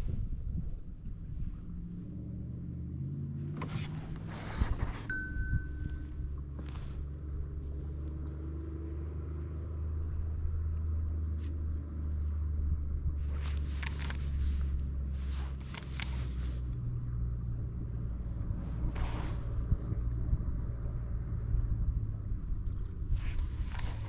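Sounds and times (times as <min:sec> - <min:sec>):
wind buffeting microphone: 0:00.0 - 0:02.8, 0:12.5 - 0:24.0.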